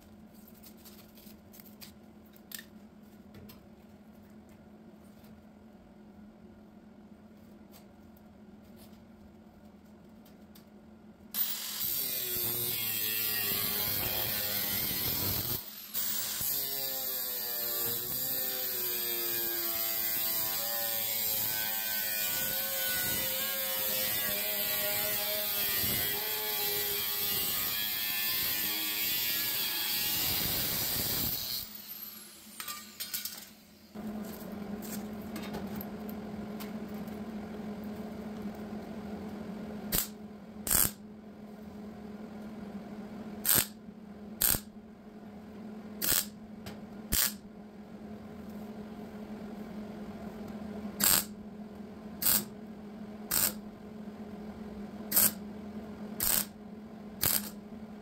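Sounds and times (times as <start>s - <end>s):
steady low hum: 33.8s - 58.0s.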